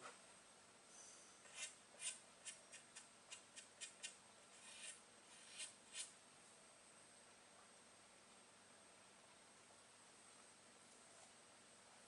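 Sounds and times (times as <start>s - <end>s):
faint high-pitched scrapes: 0.9s - 2.8s.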